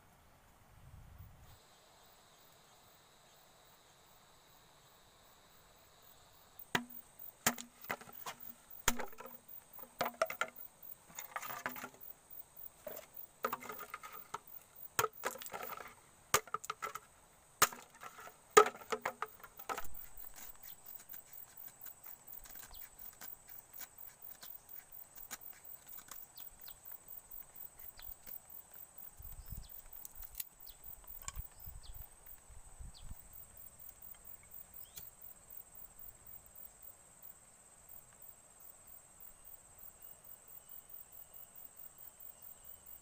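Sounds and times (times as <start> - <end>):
high insect drone: 1.5 - 43.0
bamboo being chopped: 6.8 - 12.0, 17.6 - 21.2.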